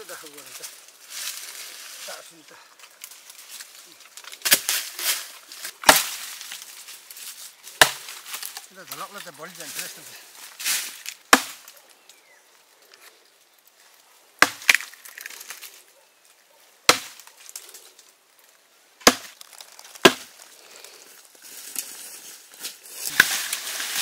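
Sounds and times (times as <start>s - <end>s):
rustling and crackling: 0.0s - 18.6s, 19.2s - 24.0s
blade chopping strikes: 7.8s - 8.1s, 16.9s - 17.2s, 19.0s - 19.4s.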